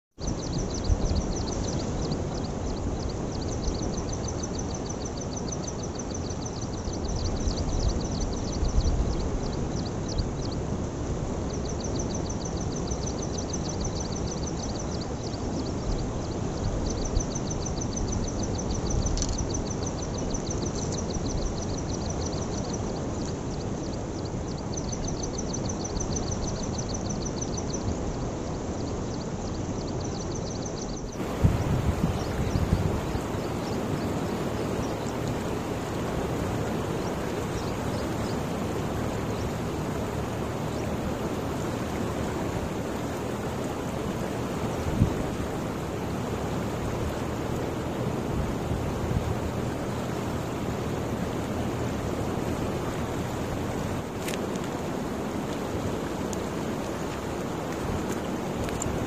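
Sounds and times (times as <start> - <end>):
low rushing noise: 31.2 - 54.2.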